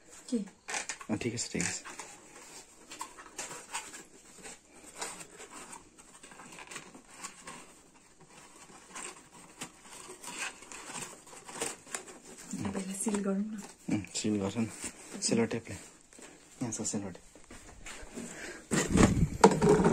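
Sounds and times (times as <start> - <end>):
cardboard boxes scraping and rustling: 1.8 - 13.8.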